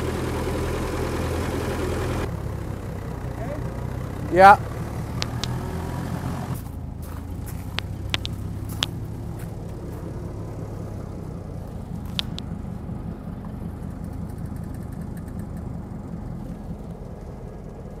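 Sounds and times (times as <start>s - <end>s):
forklift engine idling: 0.0s - 18.0s
sharp clicks: 5.2s - 5.6s, 7.7s - 9.0s, 12.0s - 12.5s.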